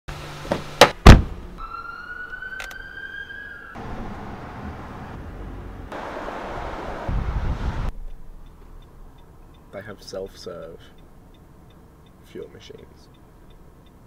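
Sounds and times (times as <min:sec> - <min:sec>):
car door shutting: 0:00.4 - 0:01.4
road noise inside moving car: 0:03.7 - 0:14.0.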